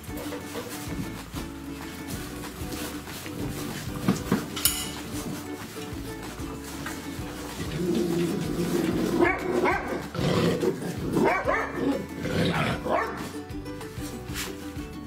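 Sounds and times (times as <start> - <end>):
background music: 0.0 - 15.0
dog barking and yipping: 7.6 - 13.4.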